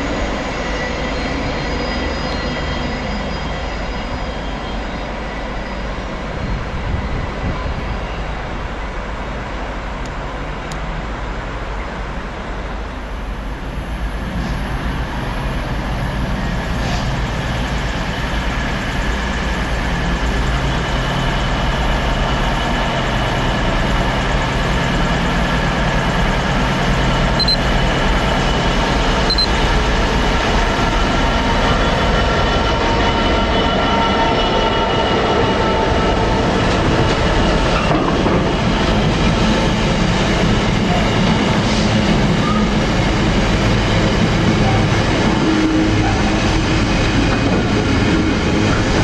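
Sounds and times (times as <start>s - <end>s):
diesel locomotive engine: 0.0s - 49.0s
high whining tones: 27.1s - 30.0s.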